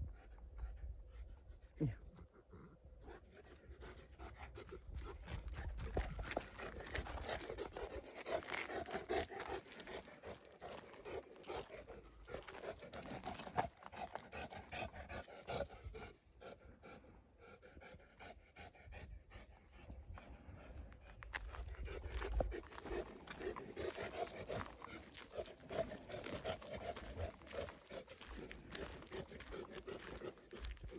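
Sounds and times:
dog panting hard: 0:00.1 - 0:30.9
footsteps on gravel path: 0:04.8 - 0:15.2, 0:20.8 - 0:30.9.

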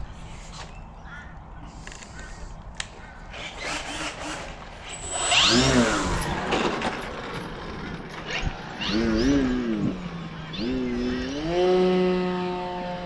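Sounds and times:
electric motor and propeller whine: 0:03.3 - 0:13.0.

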